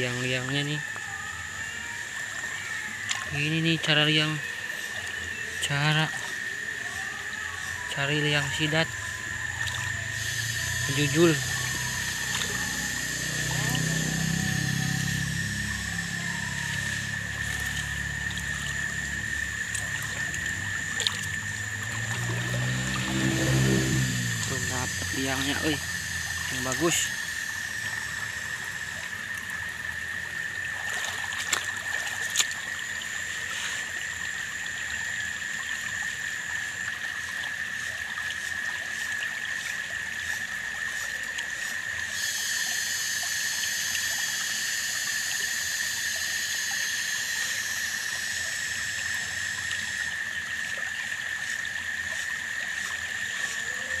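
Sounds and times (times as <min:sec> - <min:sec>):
steady high tone: 0:00.0 - 0:29.2
stream trickling over rocks: 0:00.0 - 0:54.0
high buzzing: 0:07.8 - 0:29.3.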